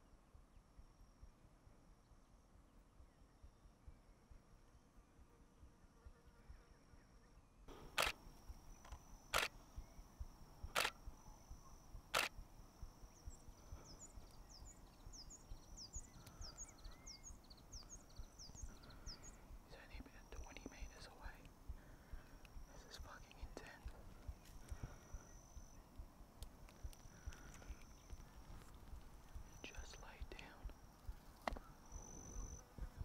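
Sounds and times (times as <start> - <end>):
camera shutter clicks: 7.7 - 8.2, 8.8 - 9.6, 10.7 - 11.0, 12.1 - 12.4.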